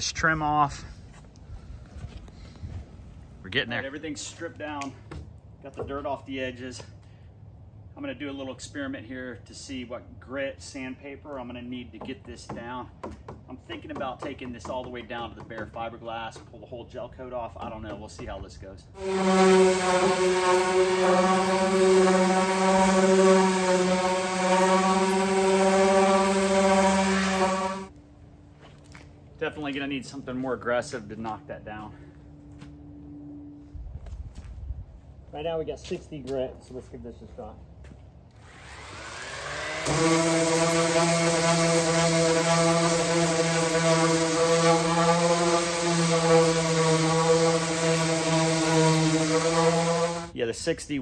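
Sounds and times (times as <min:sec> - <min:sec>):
electric sander grinding: 0:19.0 - 0:27.9, 0:38.4 - 0:50.4.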